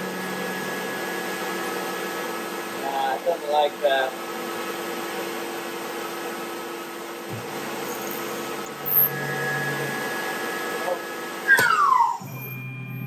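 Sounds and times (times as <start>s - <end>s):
mill spindle drilling steel: 7.6s - 13.0s
drill squeal: 7.9s - 13.0s.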